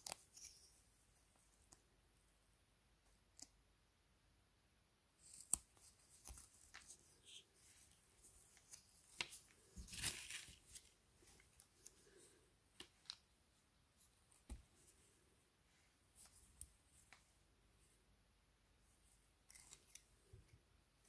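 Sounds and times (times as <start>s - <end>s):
rustle of handling: 5.2s - 13.2s.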